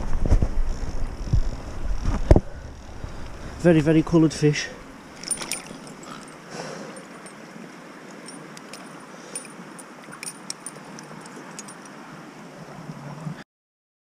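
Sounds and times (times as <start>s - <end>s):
river water running over stones: 2.0s - 13.1s
small clicks and clinks: 5.2s - 7.5s, 8.1s - 12.0s.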